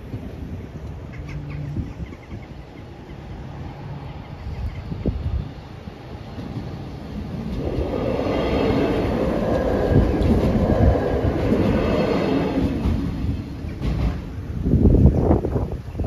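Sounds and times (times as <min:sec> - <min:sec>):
train passing over level crossing: 0:00.0 - 0:15.6.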